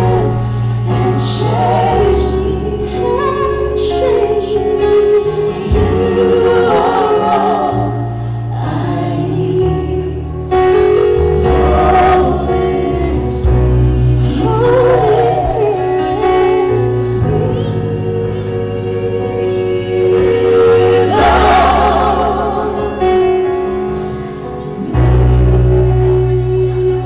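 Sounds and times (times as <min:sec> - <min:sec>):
group singing in harmony: 0:00.0 - 0:27.0
held bass notes: 0:00.0 - 0:27.0.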